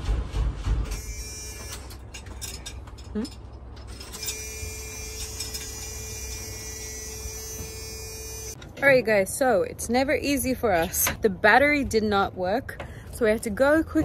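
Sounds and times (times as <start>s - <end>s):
thin steady electric buzz: 4.1s - 8.6s.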